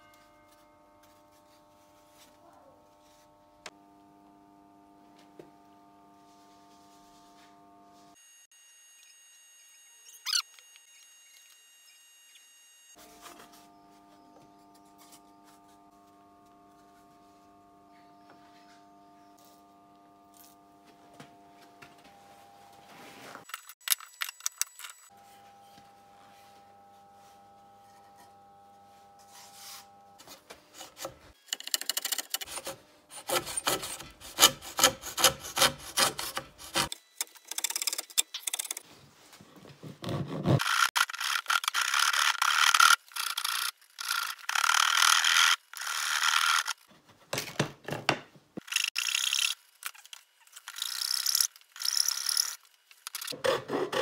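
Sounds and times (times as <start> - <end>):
hand rasp scraping wood: 32.1 - 36.9.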